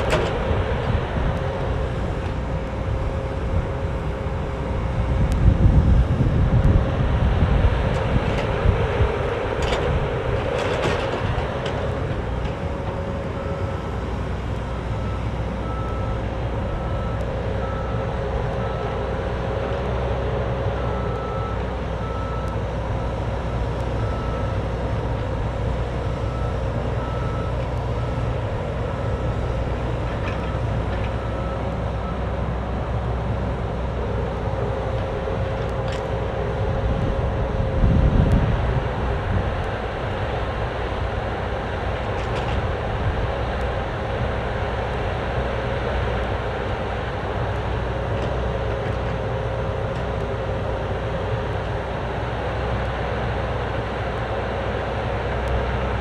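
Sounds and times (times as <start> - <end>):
diesel engine running: 0.0 - 56.0
reversing alarm beeping: 12.9 - 19.1, 26.0 - 32.4.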